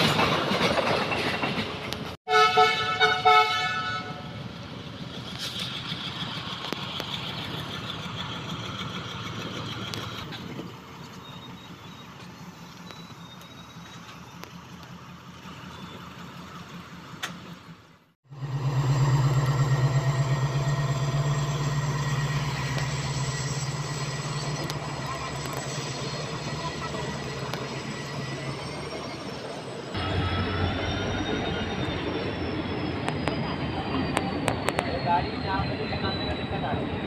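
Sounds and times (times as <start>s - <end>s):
diesel train engine drone: 0.0s - 37.0s
train rail running noise: 0.0s - 37.0s
high wheel whines: 18.2s - 37.0s.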